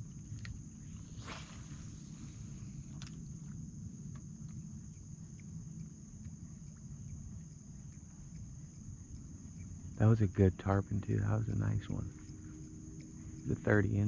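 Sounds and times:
low rumble: 0:00.0 - 0:04.9
high-pitched insect drone: 0:00.0 - 0:14.0.

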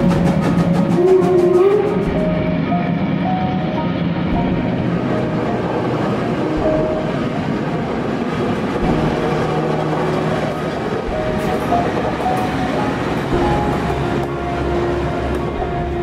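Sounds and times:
steam train rumbling on track: 0:00.0 - 0:16.0.

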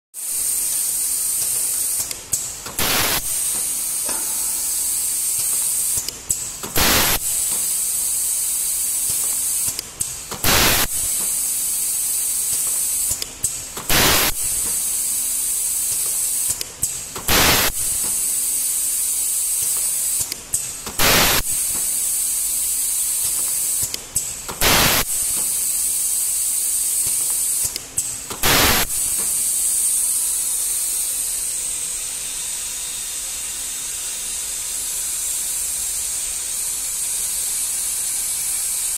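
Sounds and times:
steady high air hiss: 0:02.8 - 0:06.0, 0:28.4 - 0:38.9
short sharp air blast: 0:02.8 - 0:06.1, 0:06.7 - 0:09.8, 0:10.4 - 0:13.2, 0:13.9 - 0:16.6, 0:17.3 - 0:20.3, 0:21.0 - 0:24.0, 0:24.6 - 0:38.9.

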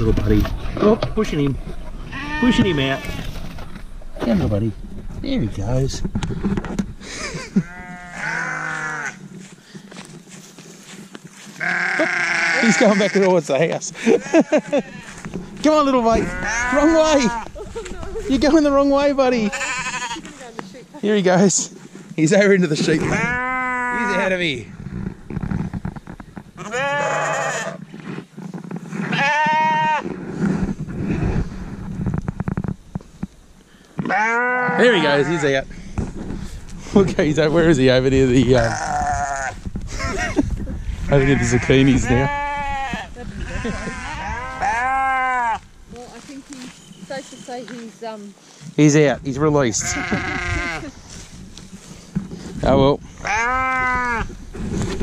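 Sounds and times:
sheep bleating: 0:02.1 - 0:03.2, 0:07.6 - 0:09.2, 0:11.6 - 0:13.4, 0:14.0 - 0:17.5, 0:19.4 - 0:20.4, 0:23.0 - 0:24.3, 0:26.6 - 0:27.8, 0:29.0 - 0:30.0, 0:34.0 - 0:35.6, 0:38.6 - 0:40.2, 0:41.0 - 0:45.6, 0:49.7 - 0:50.9, 0:53.2 - 0:54.3.

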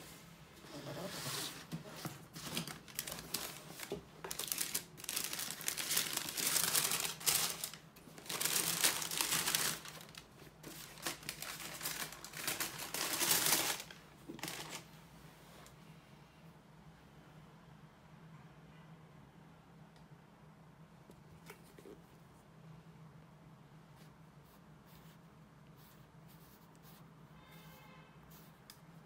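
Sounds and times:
tissue paper rustling: 0:00.7 - 0:14.9.

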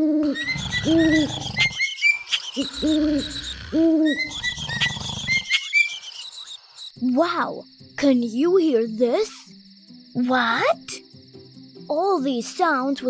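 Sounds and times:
owl hooting: 0:00.0 - 0:06.6
high chirps: 0:00.2 - 0:07.0
low snoring rumble: 0:02.7 - 0:05.5.

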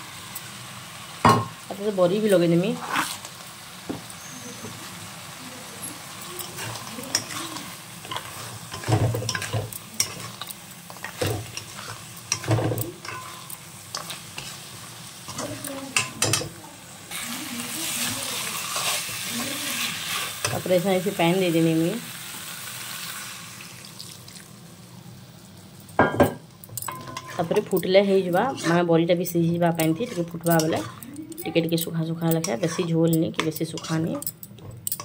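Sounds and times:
frying sizzle: 0:00.0 - 0:35.0
spatula scraping a wok: 0:02.2 - 0:03.4, 0:05.8 - 0:16.5, 0:17.1 - 0:20.7, 0:26.9 - 0:34.1.

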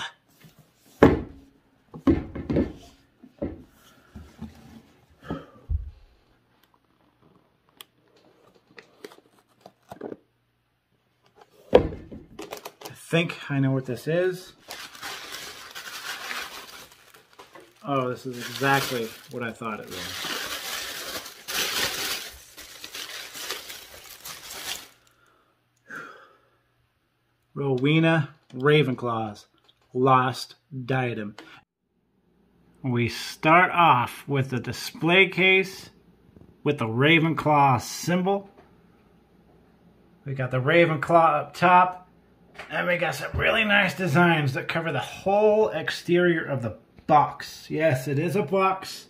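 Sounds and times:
tissue paper crinkling: 0:14.5 - 0:25.2.

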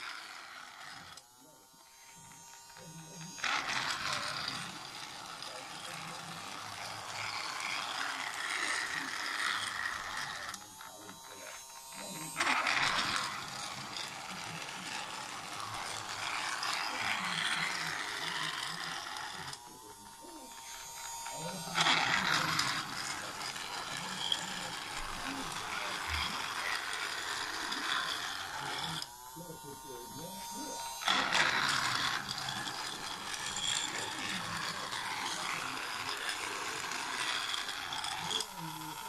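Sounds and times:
wheels rattling on plastic track: 0:00.0 - 0:01.2, 0:02.2 - 0:39.0
toy train motor whirring: 0:00.0 - 0:39.0.

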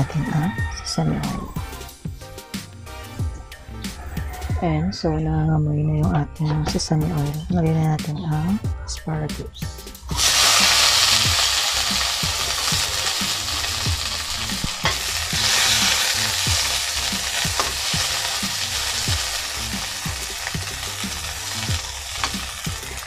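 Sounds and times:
vegetables sizzling in oil: 0:10.1 - 0:23.0.

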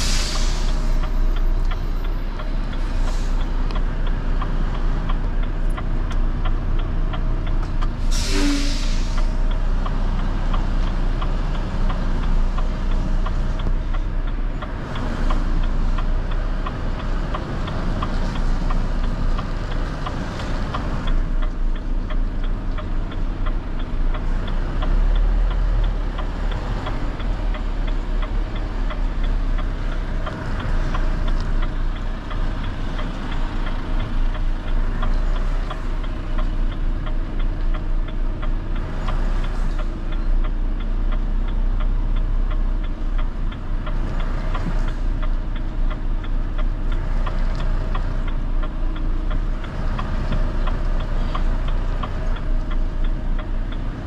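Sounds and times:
air hiss: 0:00.0 - 0:01.0, 0:08.0 - 0:09.4
truck diesel engine running: 0:00.0 - 0:54.0.

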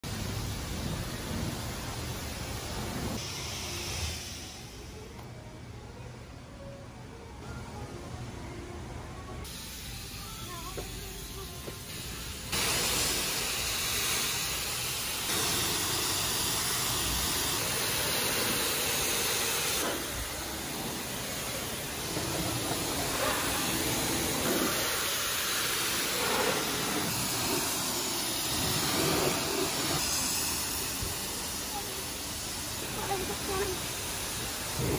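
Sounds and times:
water jet spraying car: 0:09.5 - 0:34.9.

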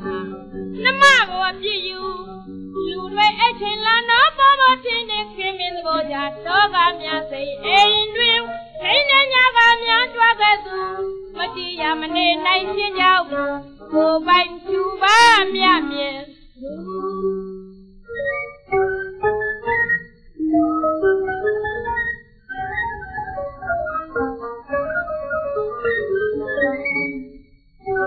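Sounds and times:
woman singing in high voice: 0:00.0 - 0:17.0
instrumental accompaniment: 0:00.0 - 0:28.0.

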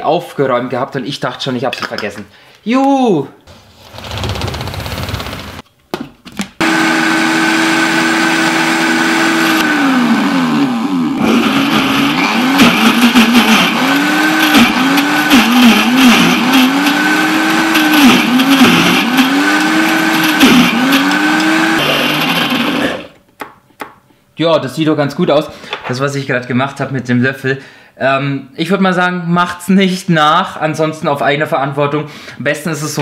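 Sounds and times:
blender motor running: 0:06.6 - 0:23.2.

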